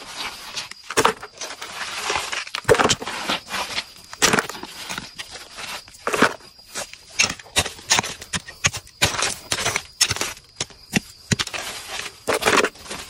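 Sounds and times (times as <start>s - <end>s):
hands scraping soil and rocks: 0.0s - 13.0s
soil dropping into plastic basin: 0.2s - 5.3s.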